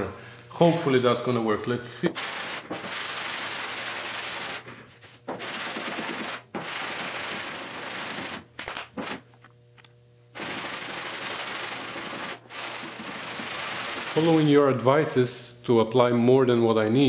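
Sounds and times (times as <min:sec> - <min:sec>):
sanding block rasping on steel: 0:02.2 - 0:04.6, 0:05.3 - 0:08.4, 0:10.4 - 0:14.4.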